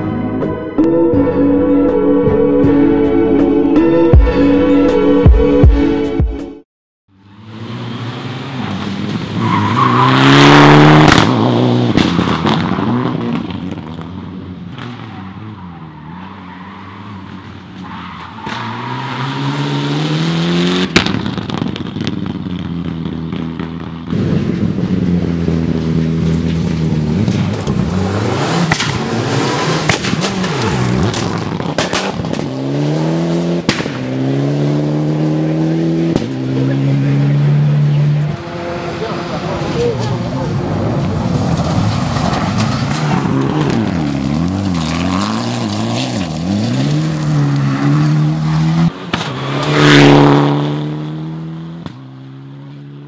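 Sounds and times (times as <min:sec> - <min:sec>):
rally car engine speeding past: 0:07.2 - 0:14.0, 0:16.8 - 0:21.8, 0:23.6 - 0:53.0.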